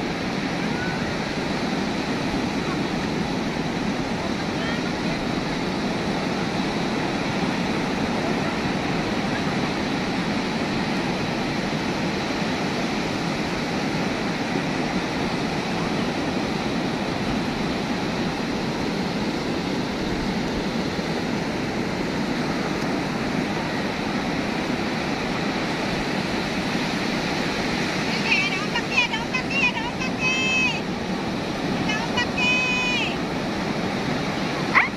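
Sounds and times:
heavy surf breaking on beach: 0.0 - 34.9.

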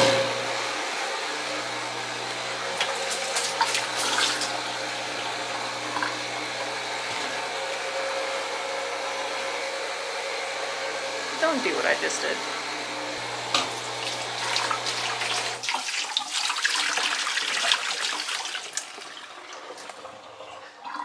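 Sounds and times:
water pouring into plastic jug: 2.7 - 6.9, 13.5 - 21.0.

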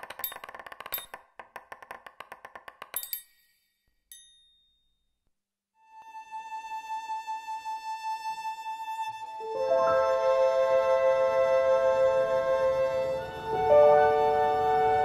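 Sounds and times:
ringing metallic clang: 3.0 - 4.9
high ding: 4.1 - 5.0.

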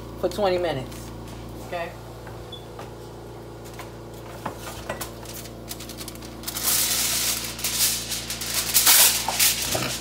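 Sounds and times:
aluminium foil crinkling: 4.7 - 10.0.

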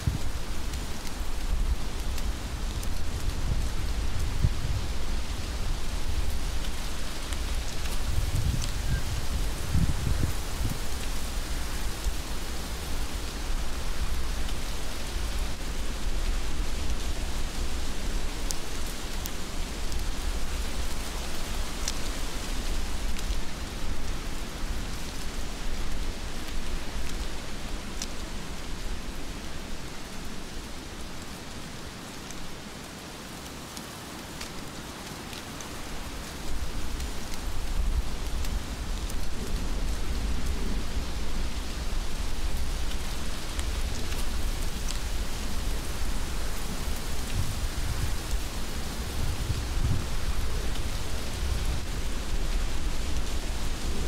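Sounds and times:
heavy rain hissing: 0.0 - 54.0
low rumble of wind: 0.0 - 54.0.

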